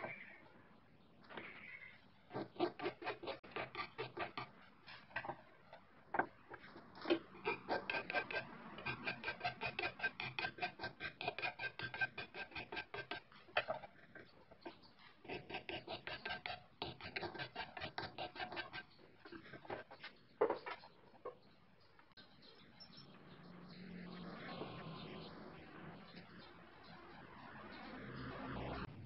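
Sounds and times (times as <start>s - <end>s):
hand file rasping on metal: 2.3s - 5.4s, 7.0s - 20.0s.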